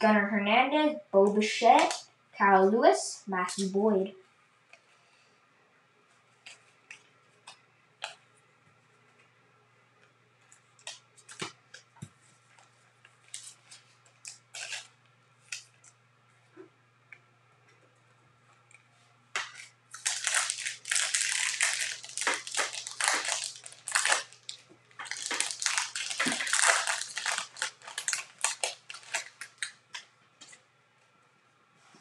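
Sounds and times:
wrapper tearing and crinkling: 13.3 - 15.7, 19.4 - 30.0.

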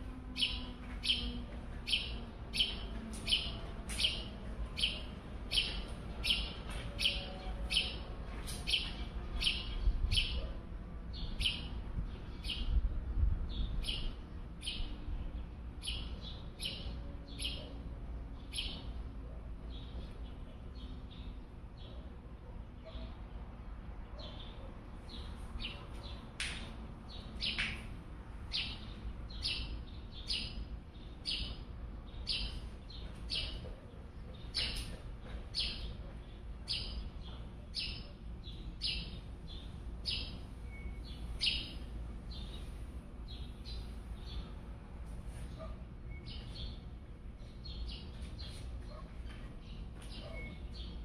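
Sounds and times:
bird chirping: 0.4 - 8.0, 28.5 - 36.0, 36.6 - 44.6, 47.4 - 51.0.

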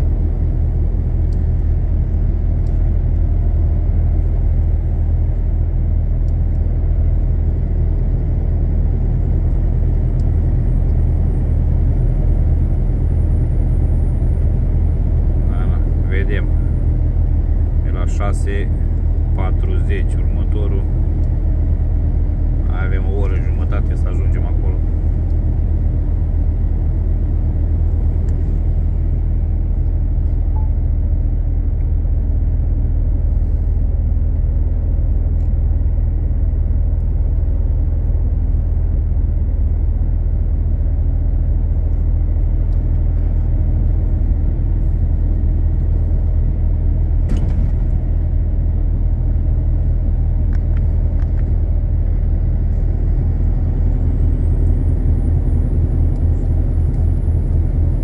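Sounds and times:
heavy truck engine and road drone: 0.0 - 58.0.

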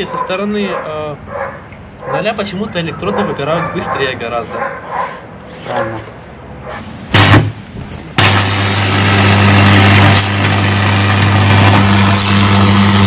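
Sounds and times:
electric arc buzzing and crackling: 8.2 - 13.0.

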